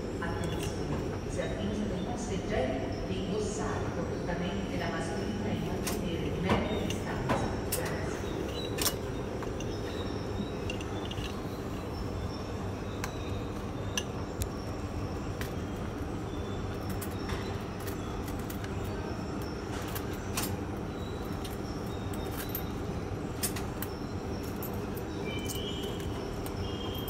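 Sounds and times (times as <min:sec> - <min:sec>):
low hum of station interior: 0:00.0 - 0:27.0
light clicks and clinks: 0:05.8 - 0:11.7, 0:16.7 - 0:27.0.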